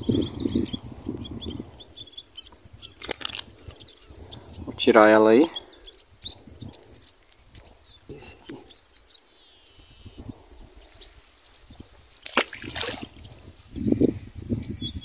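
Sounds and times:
fish splashing in water: 3.0s - 3.4s, 12.2s - 13.3s.

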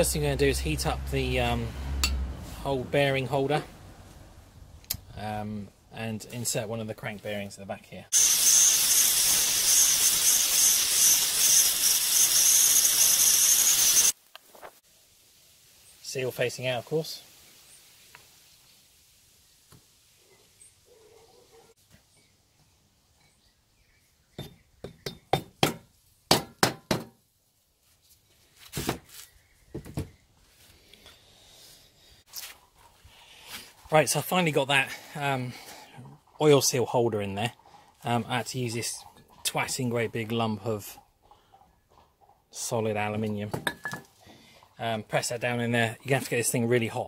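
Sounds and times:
blowtorch hissing: 8.2s - 14.2s.

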